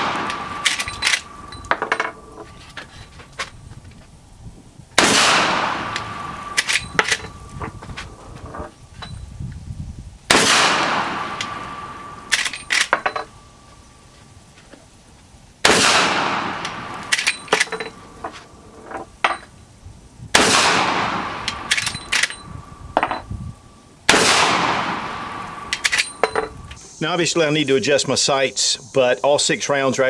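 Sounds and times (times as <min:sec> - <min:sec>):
rifle shots: 0:00.0 - 0:02.2, 0:05.0 - 0:07.7, 0:10.3 - 0:13.1, 0:15.6 - 0:18.2, 0:20.4 - 0:22.5, 0:24.1 - 0:26.6
rifle lever clicks: 0:25.7 - 0:26.4.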